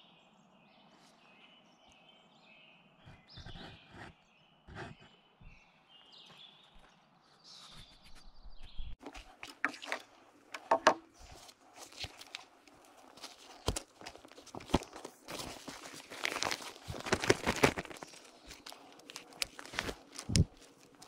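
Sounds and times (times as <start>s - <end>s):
faint bird chirps: 0.0s - 9.0s
aluminium poles clicking: 10.5s - 11.2s.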